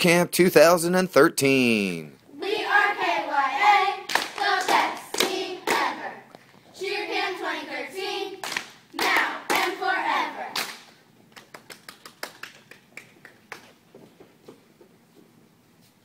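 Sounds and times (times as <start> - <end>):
quick light slaps and claps: 4.1 - 5.9, 10.6 - 14.4
loud claps: 4.1 - 6.1, 8.4 - 9.8, 10.6 - 14.3.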